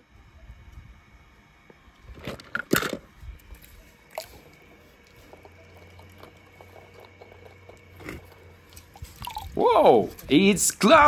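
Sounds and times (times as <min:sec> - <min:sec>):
faint water drips: 0:04.1 - 0:09.6.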